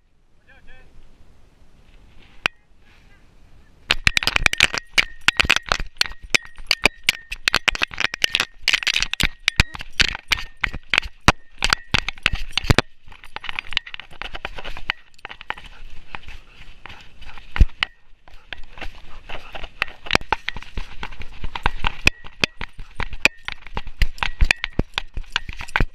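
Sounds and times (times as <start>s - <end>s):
soft noisy rustle: 0.8s - 3.9s
camera rig and collar rattling: 3.9s - 25.9s.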